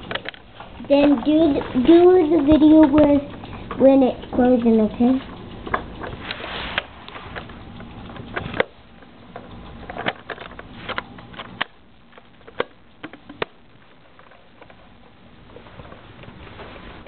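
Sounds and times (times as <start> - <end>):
light handling clicks and taps: 0.0 - 13.6.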